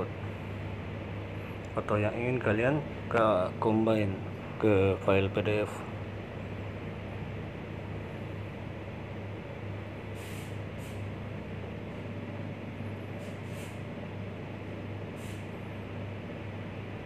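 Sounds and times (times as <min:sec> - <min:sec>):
low hum with hiss: 0:00.0 - 0:17.0
soft high hisses: 0:10.2 - 0:11.0.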